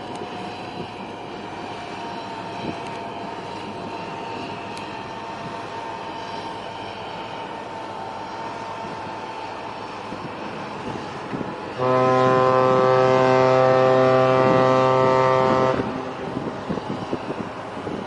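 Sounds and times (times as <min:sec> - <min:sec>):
harbour noise: 0:00.0 - 0:18.0
wind: 0:00.0 - 0:18.0
deep ship horn blast: 0:11.3 - 0:16.8.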